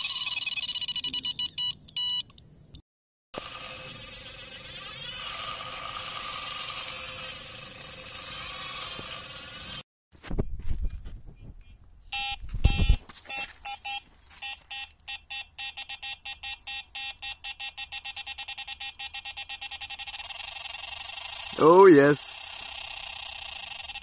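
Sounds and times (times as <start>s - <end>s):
bite alarm beeps: 0.0s - 2.4s, 11.6s - 22.6s.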